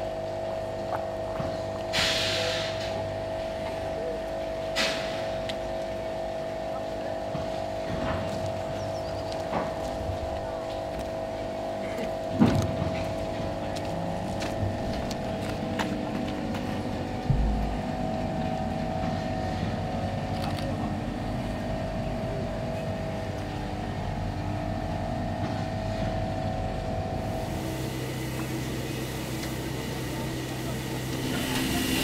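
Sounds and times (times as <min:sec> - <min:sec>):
steady mechanical hum: 0:00.0 - 0:32.0
steam hissing: 0:01.9 - 0:02.9, 0:27.2 - 0:32.0.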